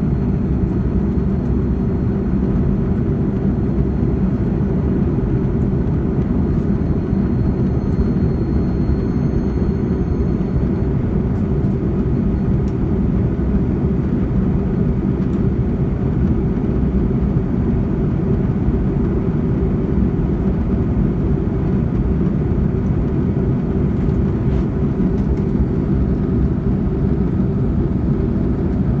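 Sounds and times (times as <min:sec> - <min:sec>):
airliner cabin rumble: 0:00.0 - 0:29.0
faint high whine: 0:05.8 - 0:13.0.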